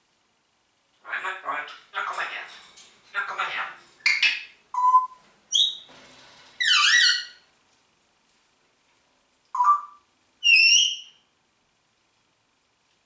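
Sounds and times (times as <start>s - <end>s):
parrot calling: 3.1s - 5.9s, 6.6s - 7.5s, 9.6s - 11.2s
parrot whistling: 9.6s - 11.2s.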